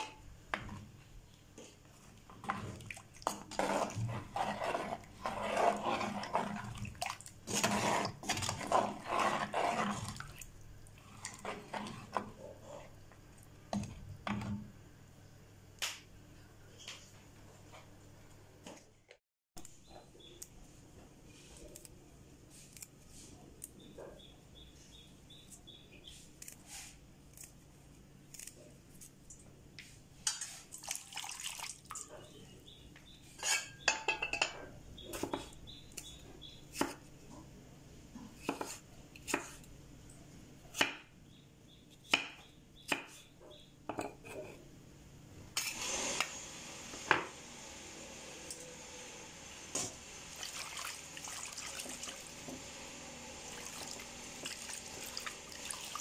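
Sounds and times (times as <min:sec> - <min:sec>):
water sloshing and splashing: 0:02.1 - 0:12.3, 0:30.3 - 0:32.3, 0:50.3 - 0:52.4, 0:53.5 - 0:56.0.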